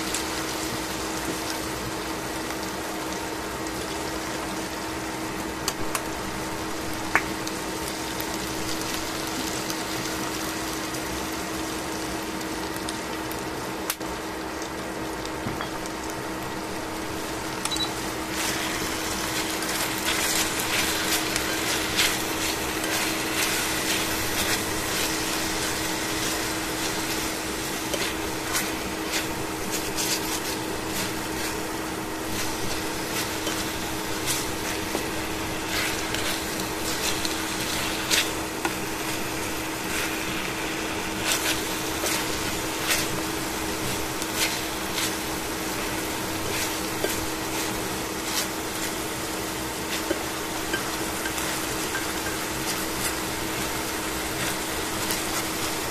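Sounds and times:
chicken sizzling in frying pan: 0.0 - 55.9
steady hum: 15.0 - 55.9
tongs clicking and scraping pan: 17.6 - 40.2, 49.9 - 53.2.

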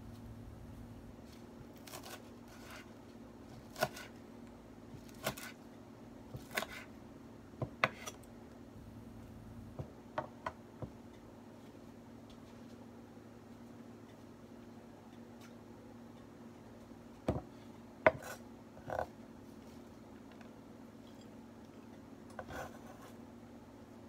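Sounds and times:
faint steady hum: 0.0 - 24.0
knife chopping on wooden board: 3.6 - 4.1, 5.0 - 5.6, 6.3 - 6.9, 7.6 - 8.2.

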